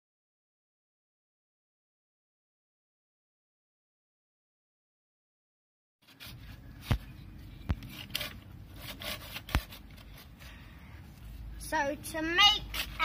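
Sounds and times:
hand saw rasping through wood: 0:08.0 - 0:10.4.

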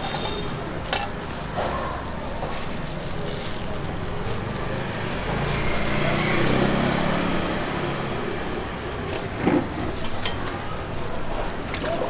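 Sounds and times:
light engine passing: 0:02.8 - 0:12.0.

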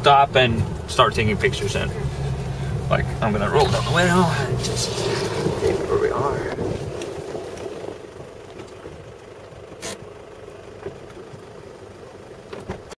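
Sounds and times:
truck engine idling: 0:00.0 - 0:12.5
brief rush of noise: 0:03.5 - 0:07.9.

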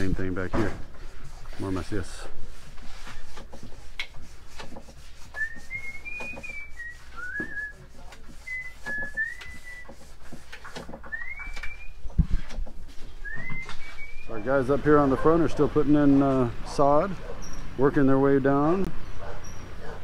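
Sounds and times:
person whistling a tune: 0:05.4 - 0:07.8, 0:08.4 - 0:09.9, 0:11.1 - 0:12.0, 0:13.2 - 0:14.3.

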